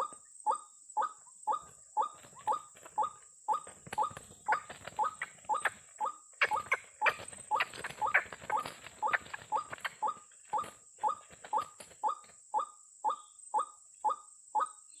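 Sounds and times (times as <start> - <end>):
waterhen calling: 6.4 - 12.3.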